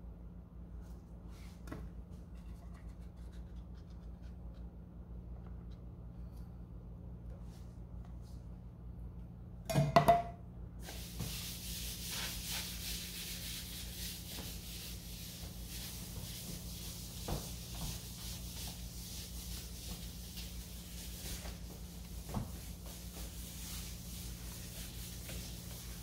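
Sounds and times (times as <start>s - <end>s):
cloth wiping metal door: 10.8s - 26.0s.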